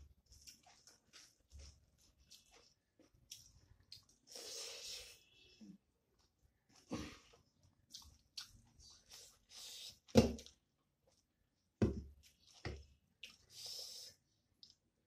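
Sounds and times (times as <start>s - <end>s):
chewing and mouth noises: 0.3s - 4.4s, 6.2s - 11.3s, 13.2s - 13.7s.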